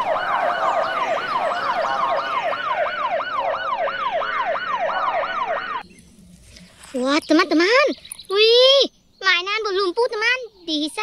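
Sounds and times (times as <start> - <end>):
fire engine siren yelping: 0.0 - 5.8.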